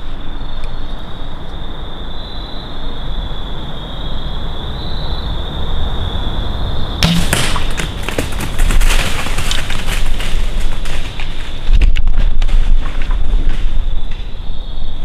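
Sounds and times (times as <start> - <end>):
bow shot: 7.0 - 8.0
arrow striking a deer: 7.0 - 9.6
deer running through dry leaves: 7.2 - 14.2.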